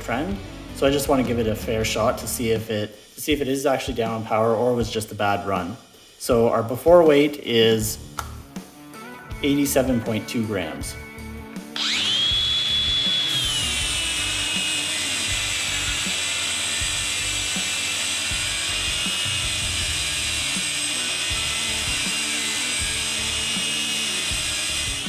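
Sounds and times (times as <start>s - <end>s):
angle grinder grinding metal: 11.7s - 25.0s.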